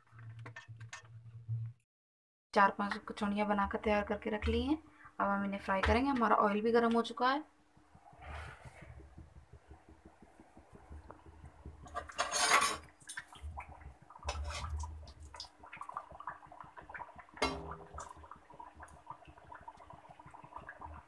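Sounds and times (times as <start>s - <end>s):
oil sizzling and popping: 7.7s - 21.0s
metal spoon scraping pan: 11.8s - 12.9s, 14.2s - 14.8s.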